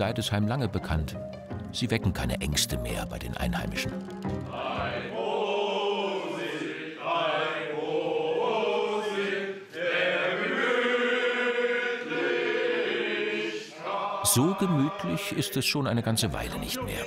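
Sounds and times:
voices singing slowly: 0:03.5 - 0:17.0.

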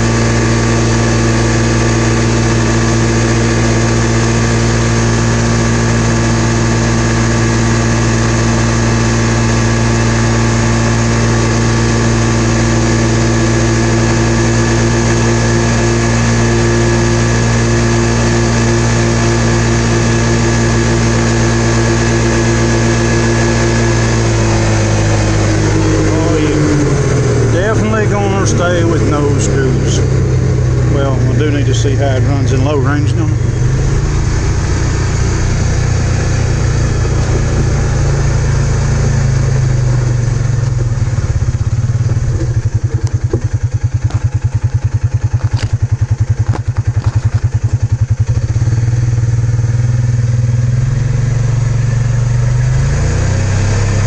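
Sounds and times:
engine running at high revs: 0:00.0 - 0:54.0.

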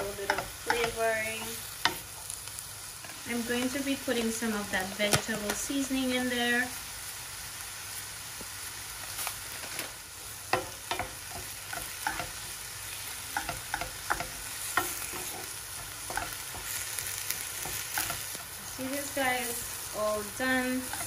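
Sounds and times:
vegetables sizzling in a frying pan: 0:00.0 - 0:21.0
wooden spoon scraping a pan: 0:10.5 - 0:21.0.

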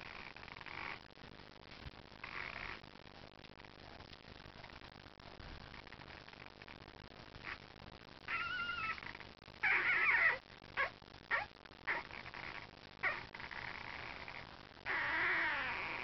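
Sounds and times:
puppies squeaking and whimpering: 0:08.3 - 0:14.3, 0:14.9 - 0:16.0.

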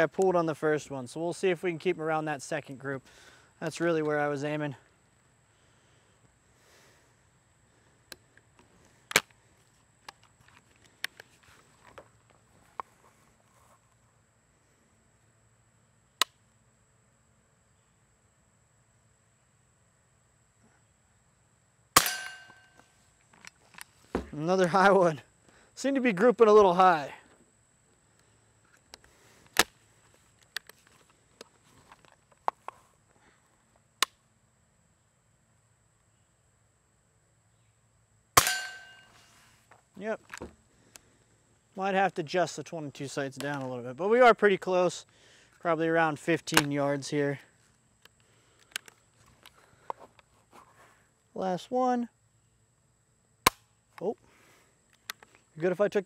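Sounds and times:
gun action snapping shut: 0:09.1 - 0:09.3, 0:46.5 - 0:46.7
small metallic clicks: 0:48.0 - 0:50.3.

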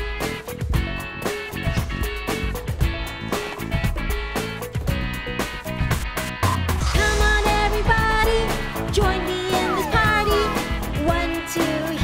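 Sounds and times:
upbeat cartoon music: 0:00.0 - 0:12.0
falling pitch glide: 0:09.3 - 0:10.6.

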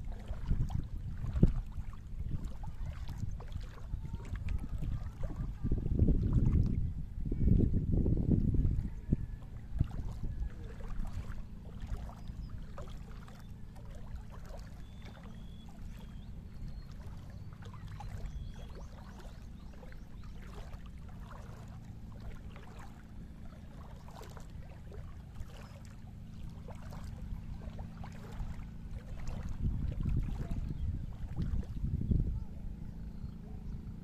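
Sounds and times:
low wind rumble on microphone: 0:00.0 - 0:34.0
sea lapping in shallow water: 0:00.0 - 0:34.0.

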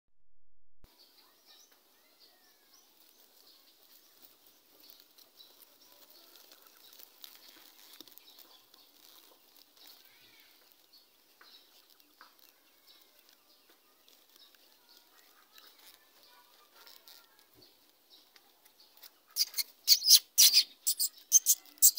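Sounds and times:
birds chirping: 0:01.0 - 0:21.9
sliding whistled bird calls: 0:19.4 - 0:21.9.

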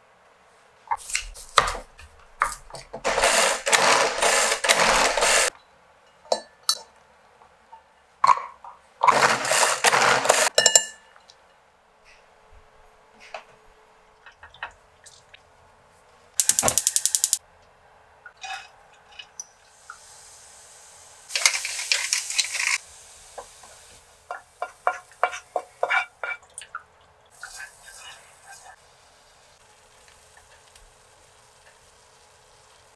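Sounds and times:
spatula scraping pan: 0:09.0 - 0:10.5, 0:24.3 - 0:26.4
rapid ratcheting clicks: 0:16.4 - 0:17.4
carrots sizzling in frying pan: 0:19.7 - 0:25.8, 0:27.4 - 0:32.9.

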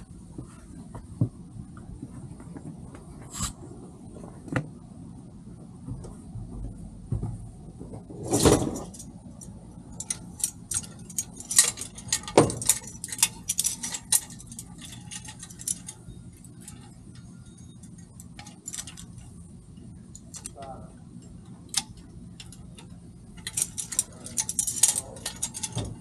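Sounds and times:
metallic clinks and rattles of gear: 0:08.2 - 0:26.0.

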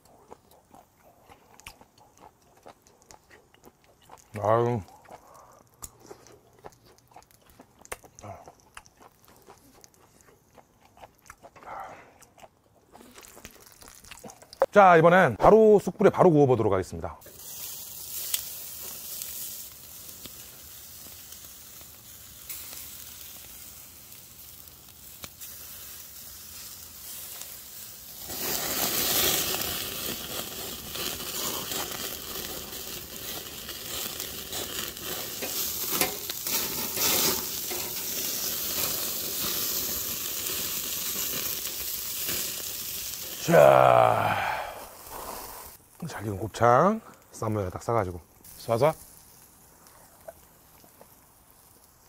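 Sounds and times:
fat flaring on coals: 0:00.0 - 0:16.2, 0:16.8 - 0:52.0
meat sizzling on a grill: 0:13.0 - 0:15.0, 0:17.2 - 0:52.0.

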